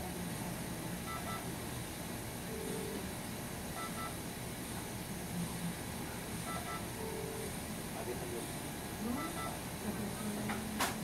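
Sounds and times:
monitor paired beeps: 1.0s - 1.5s, 3.8s - 4.2s, 6.4s - 7.5s, 9.1s - 9.6s.

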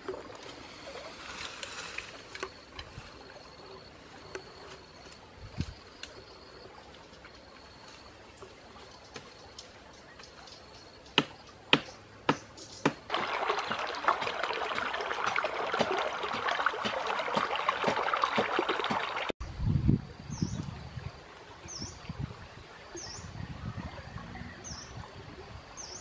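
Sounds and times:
stream trickling over stones: 0.0s - 4.7s, 12.8s - 19.4s.

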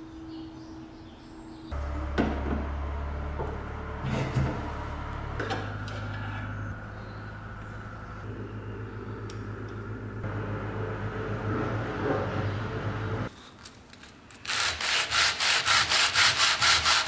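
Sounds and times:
steady low hum: 0.0s - 13.3s.

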